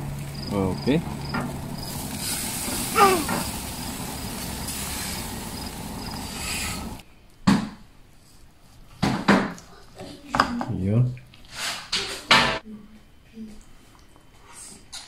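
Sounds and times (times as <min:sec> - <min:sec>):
crickets chirping: 0:00.0 - 0:07.0.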